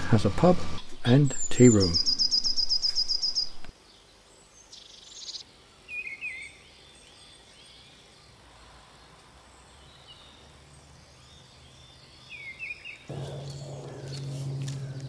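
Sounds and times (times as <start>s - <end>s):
birds chirping and warbling: 0.2s - 8.4s, 9.6s - 15.0s
songbird high trill: 1.3s - 3.6s.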